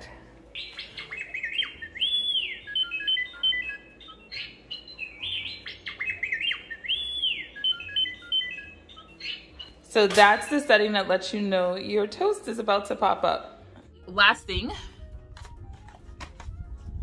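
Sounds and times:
robot beeps and chirps: 0:00.8 - 0:09.9.

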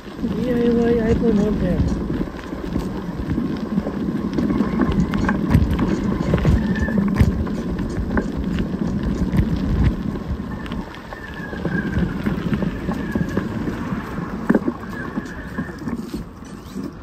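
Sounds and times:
bicycle rattling: 0:00.0 - 0:17.0
wind noise on microphone: 0:00.0 - 0:17.0.

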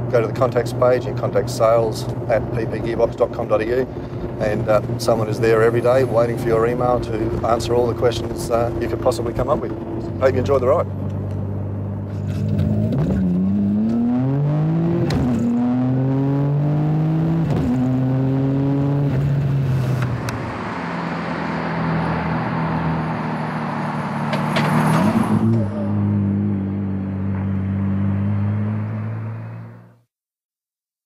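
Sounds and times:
car engine revving through gears: 0:11.0 - 0:29.9
car driving past: 0:12.1 - 0:30.0.

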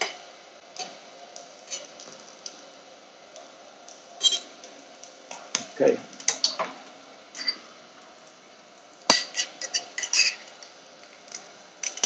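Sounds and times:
knife scraping on ceramic plate: 0:04.2 - 0:04.5.

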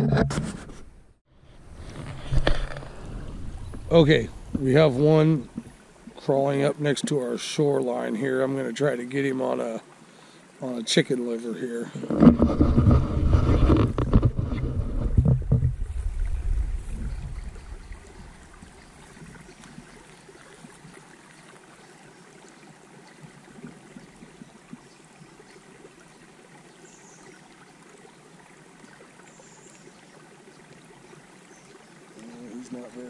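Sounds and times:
creek water trickling: 0:01.3 - 0:33.0
wind rumbling on microphone: 0:01.4 - 0:05.8, 0:12.0 - 0:20.0.

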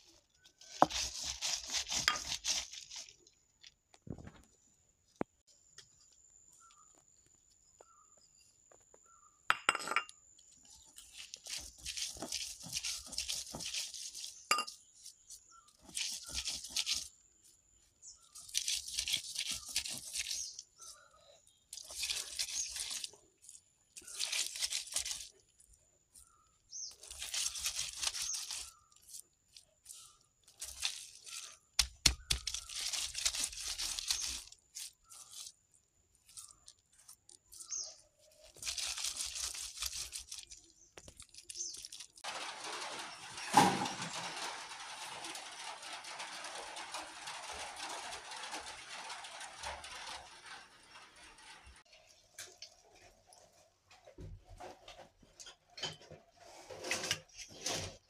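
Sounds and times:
stone roller crunching food: 0:00.0 - 0:04.5, 0:09.6 - 0:58.0
stone-on-stone knock: 0:09.5 - 0:10.1.

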